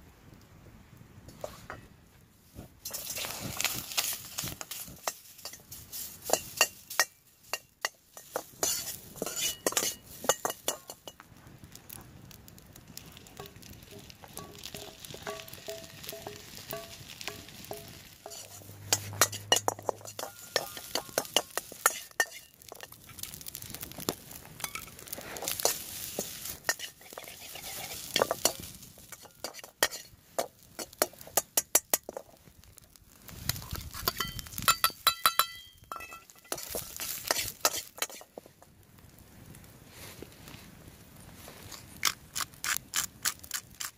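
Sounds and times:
metal ladle scraping frying pan: 2.8 - 11.1, 13.9 - 23.0, 24.6 - 32.2, 33.7 - 38.5
food sizzling: 2.8 - 11.2, 11.8 - 38.6.

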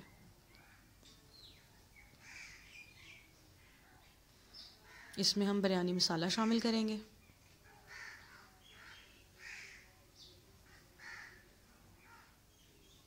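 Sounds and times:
crows cawing: 2.2 - 2.7, 4.8 - 5.2, 7.9 - 9.9, 10.7 - 12.3.

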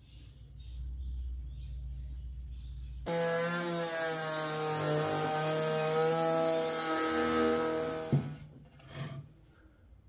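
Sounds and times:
electric router cutting wood: 3.1 - 8.4.

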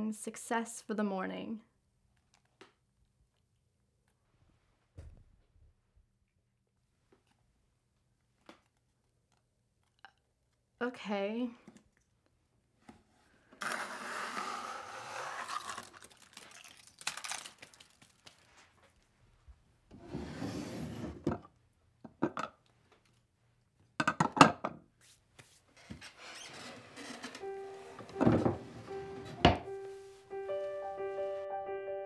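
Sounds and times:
wooden drawer sliding open: 19.9 - 21.3, 26.4 - 29.9
rubbing and rustling: 25.0 - 30.3.

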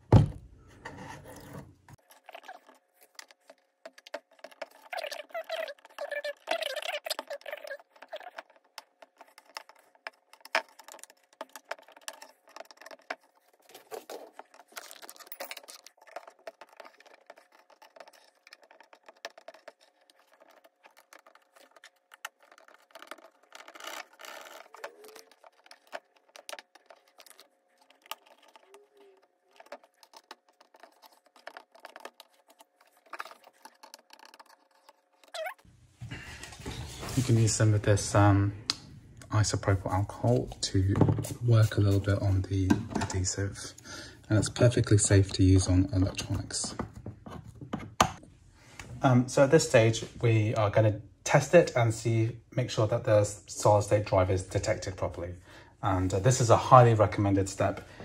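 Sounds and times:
plastic tool scraping adhesive: 0.9 - 35.6.

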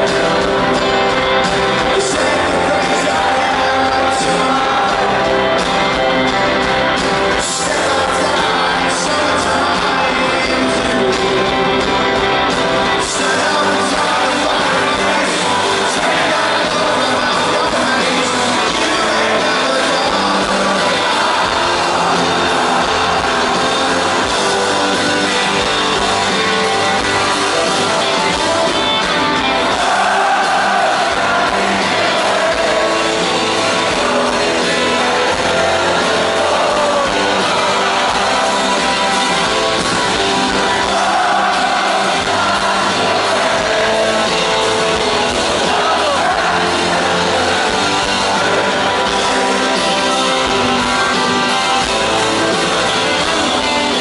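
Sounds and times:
rock band playing live: 0.0 - 54.0.

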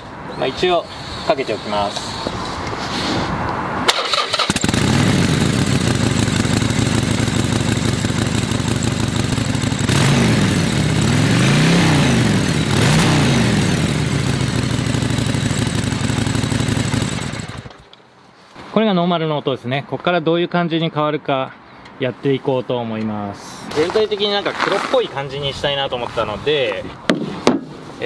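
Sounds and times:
motorcycle throttle blips: 4.1 - 17.9
motorcycle engine idling: 4.5 - 17.8.

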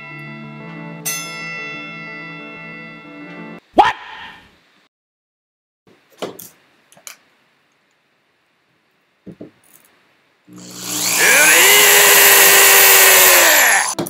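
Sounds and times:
electric drill whine: 10.5 - 14.0.

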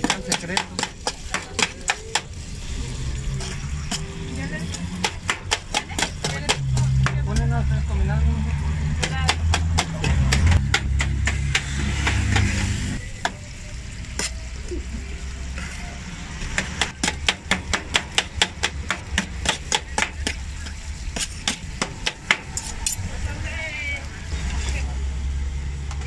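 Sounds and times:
cutlery scraping metal pan: 3.3 - 5.2.

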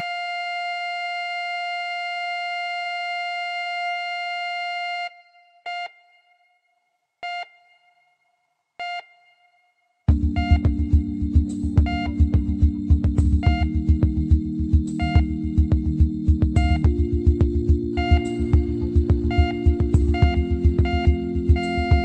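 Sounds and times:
short beeps: 4.9 - 6.6, 7.2 - 8.2, 8.8 - 22.0
steady telephone line tone: 7.2 - 22.0.

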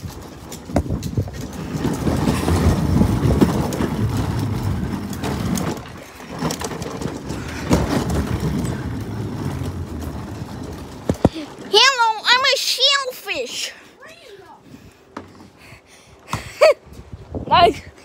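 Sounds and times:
knocks and bumps: 0.0 - 12.3
plastic toy wheels rattling: 0.0 - 12.6.

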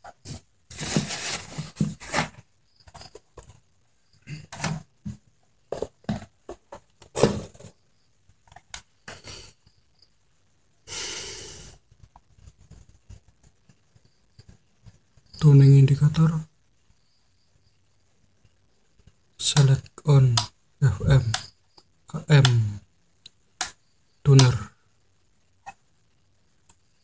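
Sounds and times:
cardboard and paper rustling: 0.2 - 3.6.

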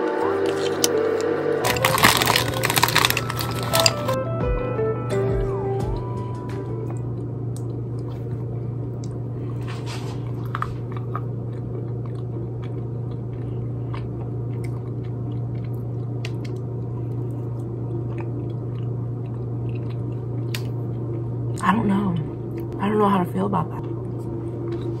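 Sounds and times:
low hum: 0.0 - 4.2
person chewing: 0.4 - 4.2, 10.2 - 21.2.

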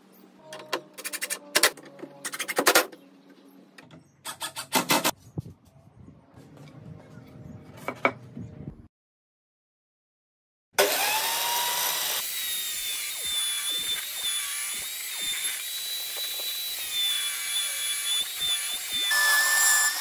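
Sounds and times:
table saw cutting wood: 10.8 - 20.0.

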